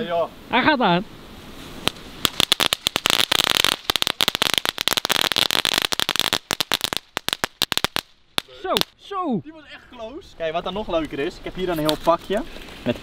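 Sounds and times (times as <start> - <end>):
firework hiss: 1.2 - 9.0
firework crackling pops: 1.5 - 9.0.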